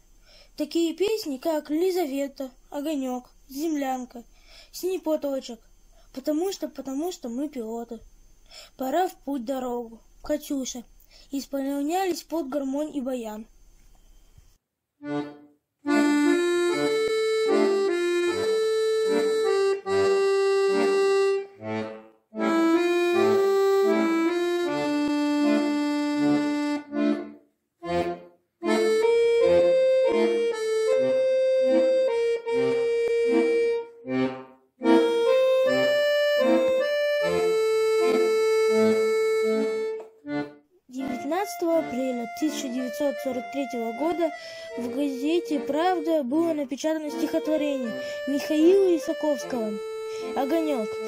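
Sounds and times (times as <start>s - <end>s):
accordion bass notes: 15.0s - 51.0s
accordion melody: 15.0s - 51.0s.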